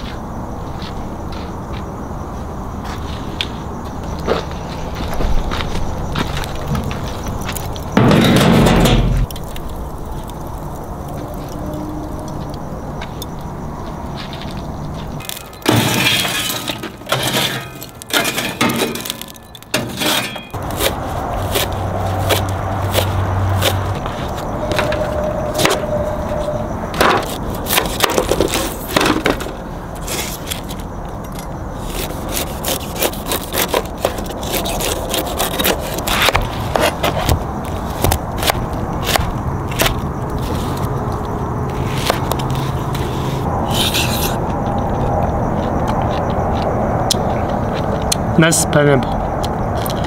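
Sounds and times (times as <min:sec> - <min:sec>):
foil pans being moved: 0:15.6 - 0:20.5.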